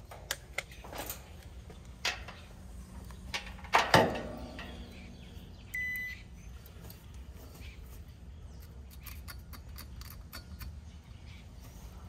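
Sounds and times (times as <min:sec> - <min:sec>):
multimeter beep: 0:05.7 - 0:06.2
tools clicking on metal terminals: 0:08.5 - 0:10.8.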